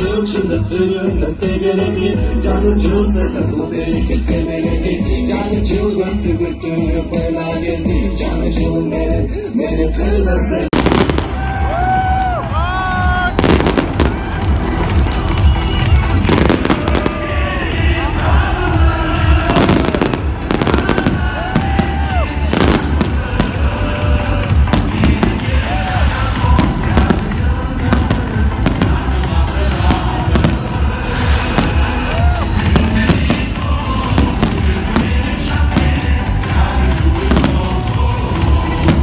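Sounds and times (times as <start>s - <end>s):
fireworks bangs and crackles: 10.7s - 12.5s, 13.3s - 39.0s.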